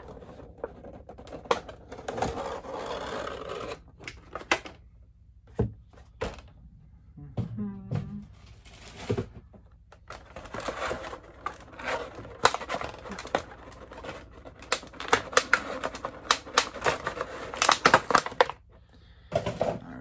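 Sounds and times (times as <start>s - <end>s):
plastic packaging crinkling: 10.1s - 18.7s.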